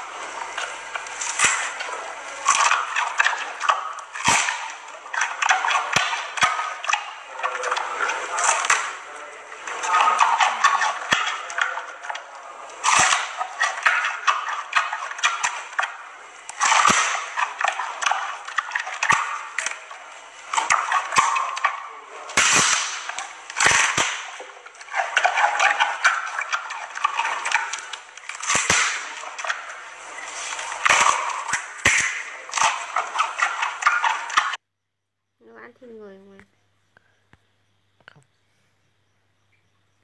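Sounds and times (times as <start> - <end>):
panda chewing wet crunching: 0.0 - 34.4
bamboo snapping: 0.6 - 7.8, 12.8 - 29.8, 30.6 - 34.6.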